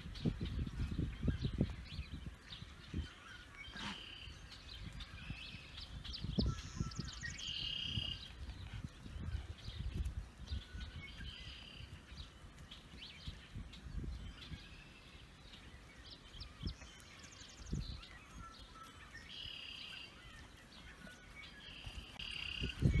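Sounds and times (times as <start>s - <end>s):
small birds chirping: 0.0s - 23.0s
bird trill: 16.5s - 23.0s.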